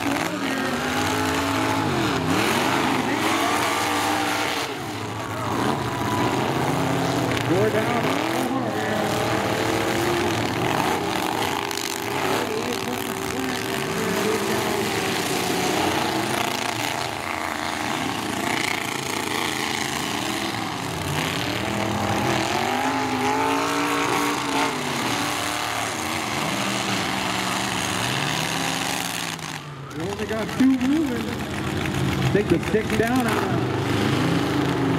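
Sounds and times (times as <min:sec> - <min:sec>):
truck engines revving: 0:00.0 - 0:34.9.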